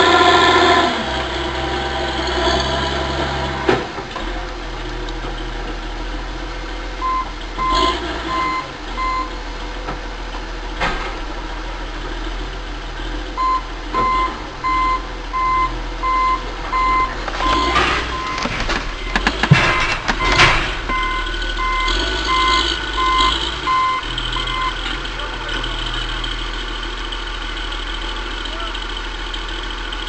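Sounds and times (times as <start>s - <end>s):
diesel engine running: 0.0s - 30.0s
backup alarm beeping: 7.0s - 9.4s, 13.4s - 24.8s
sharp knocks: 17.4s - 21.3s.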